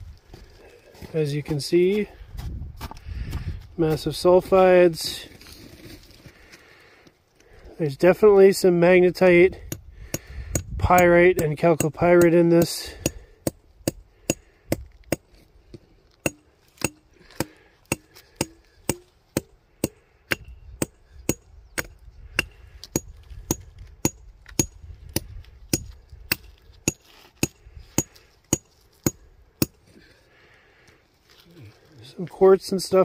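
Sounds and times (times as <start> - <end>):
rock hammer striking rock: 9.6 - 15.3, 16.2 - 29.8.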